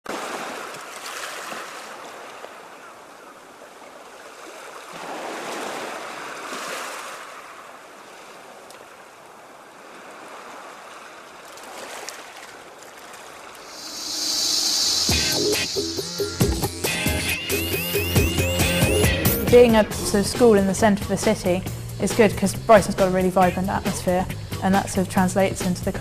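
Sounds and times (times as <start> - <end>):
sea surf washing on shore: 0.1 - 16.4.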